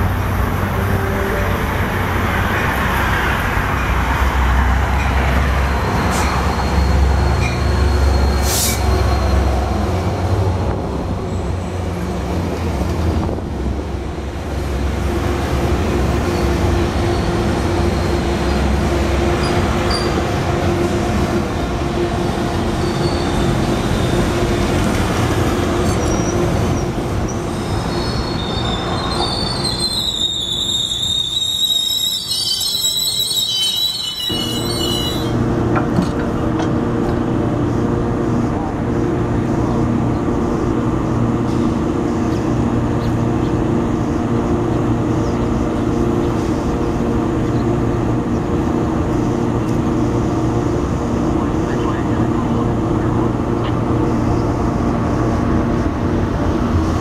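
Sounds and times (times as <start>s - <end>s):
train wheels rumbling on rails: 0.0s - 57.0s
high-pitched wheel squeal: 27.6s - 35.4s.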